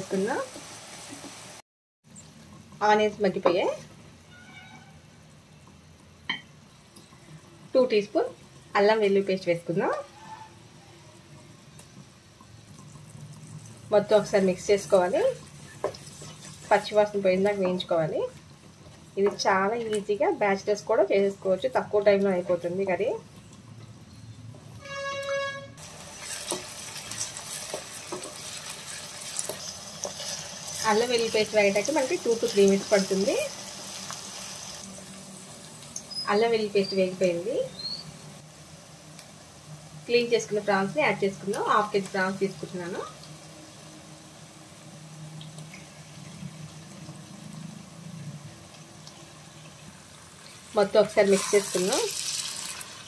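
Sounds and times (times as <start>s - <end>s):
onions sizzling in hot oil: 0.0s - 25.0s, 25.8s - 53.0s
steady horn-like tone: 24.8s - 25.8s
spatula scraping pan: 26.1s - 30.4s.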